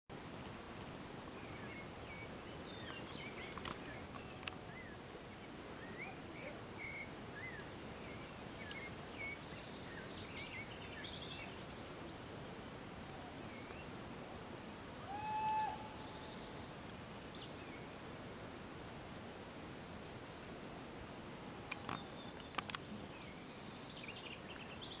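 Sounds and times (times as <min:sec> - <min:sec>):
small birds chirping: 0:00.2 - 0:12.4, 0:18.6 - 0:25.0
whistled bird call: 0:15.0 - 0:16.5
sharp clicks: 0:21.7 - 0:22.9.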